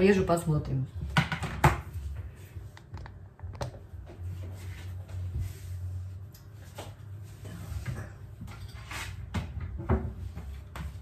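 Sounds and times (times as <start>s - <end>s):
dish knocking on countertop: 1.1s - 1.9s.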